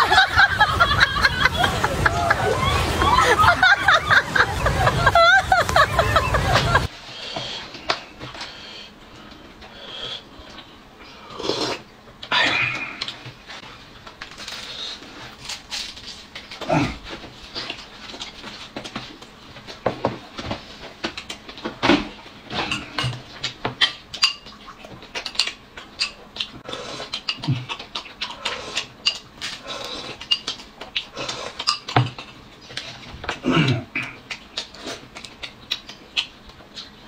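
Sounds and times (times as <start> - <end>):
chewing and lip-smacking: 23.4 - 33.4, 34.0 - 37.0.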